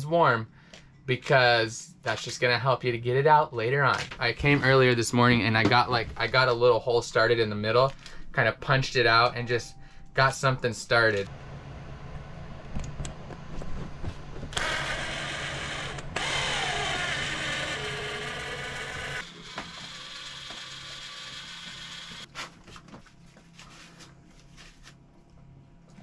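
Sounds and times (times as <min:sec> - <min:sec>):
cordless drill drilling into metal: 0:14.6 - 0:22.3.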